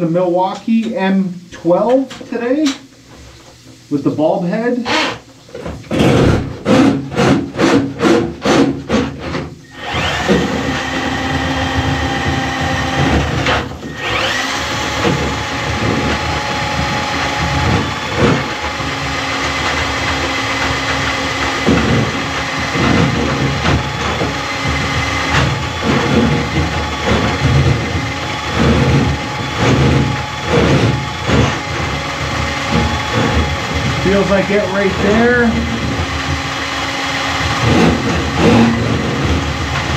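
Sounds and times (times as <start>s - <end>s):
drain snake motor whine: 9.6s - 39.9s
drain snake knocking: 9.9s - 39.9s.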